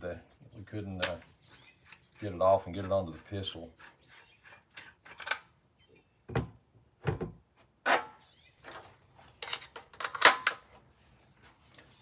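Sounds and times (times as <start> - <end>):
metal clicks and scrapes: 1.0 - 5.5.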